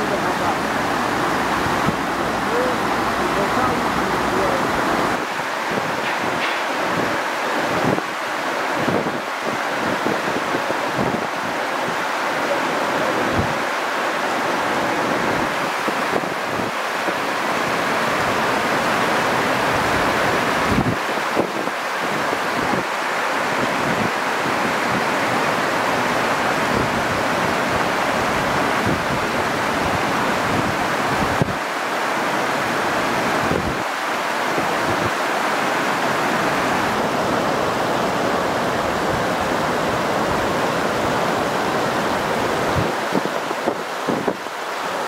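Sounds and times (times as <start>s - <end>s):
river water rushing: 0.0s - 45.0s
wind buffeting microphone: 20.6s - 22.9s, 33.4s - 33.9s, 36.8s - 44.5s.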